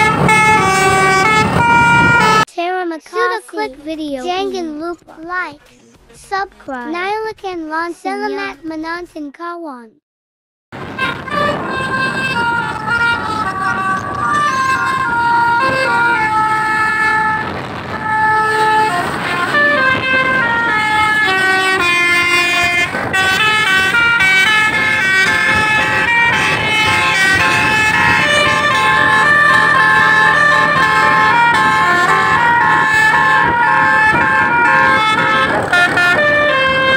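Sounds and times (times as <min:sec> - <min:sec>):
bus engine running: 0:00.0 - 0:02.5, 0:10.8 - 0:36.9
musical air horn melody: 0:00.0 - 0:02.5, 0:10.8 - 0:36.9.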